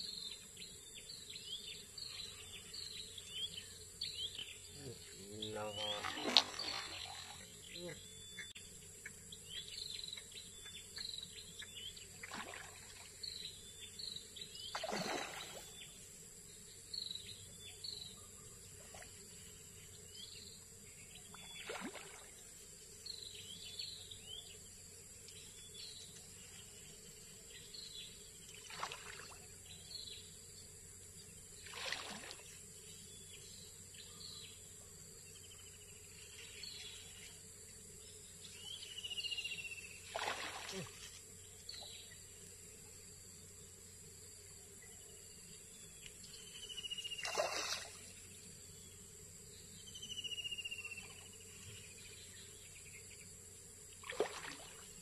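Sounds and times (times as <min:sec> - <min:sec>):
small birds chirping: 0:00.0 - 0:30.4, 0:31.2 - 0:43.9, 0:44.6 - 0:53.4
high insect drone: 0:00.0 - 0:55.0
brief splashy noises: 0:05.8 - 0:07.4, 0:12.2 - 0:13.1, 0:14.7 - 0:15.7, 0:21.6 - 0:22.3, 0:28.6 - 0:29.4, 0:31.6 - 0:32.5, 0:40.1 - 0:41.0, 0:47.2 - 0:48.0, 0:54.0 - 0:54.8.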